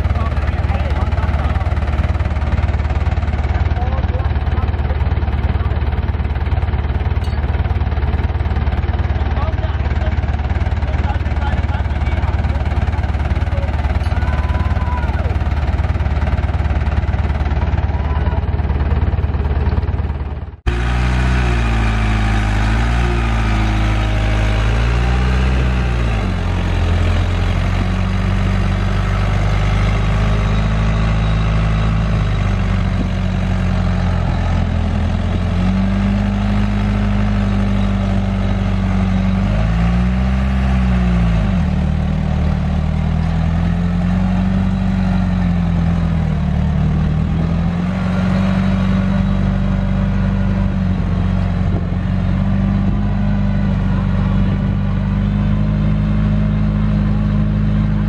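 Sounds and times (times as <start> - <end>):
bulldozer diesel engine under load: 0.0 - 58.0.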